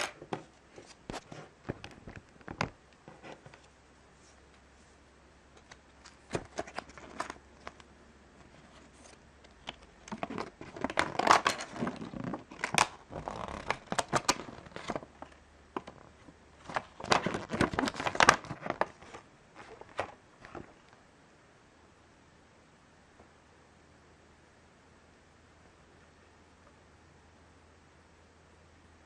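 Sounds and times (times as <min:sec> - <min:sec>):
plastic bag crinkling: 0:10.1 - 0:20.8.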